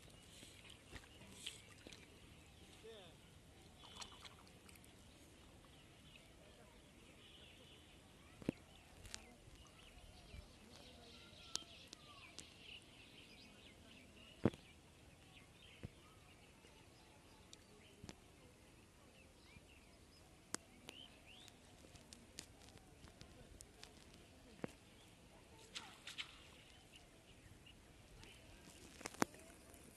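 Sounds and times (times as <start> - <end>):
faint bird chirps: 0.0 - 22.0.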